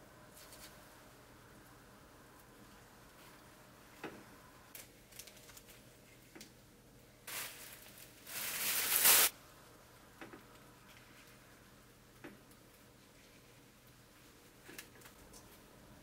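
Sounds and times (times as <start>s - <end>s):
plastic packaging crinkling: 7.3s - 9.3s.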